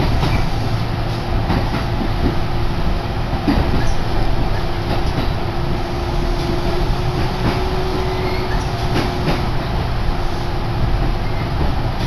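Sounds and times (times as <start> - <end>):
rail-joint clicks: 0.0 - 2.5, 3.3 - 5.5, 6.3 - 9.9
train rumble from inside car: 0.0 - 12.0.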